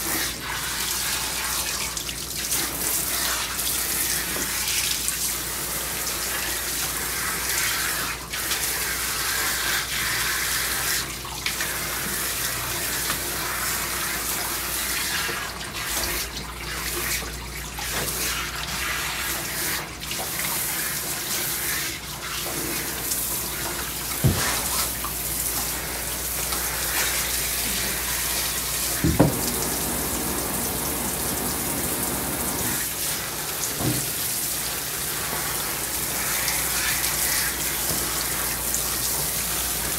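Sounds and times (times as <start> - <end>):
water spraying from hose: 17.9 - 39.9.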